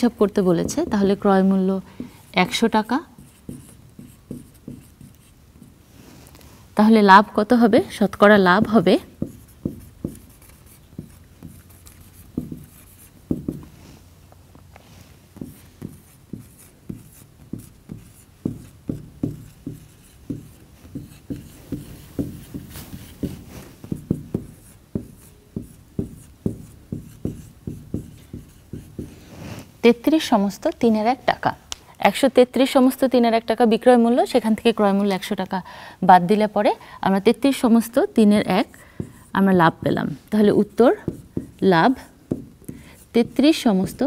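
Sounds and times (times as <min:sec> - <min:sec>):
marker pen writing on whiteboard: 0:00.0 - 0:05.9, 0:07.9 - 0:13.9, 0:14.7 - 0:29.7, 0:38.3 - 0:44.0.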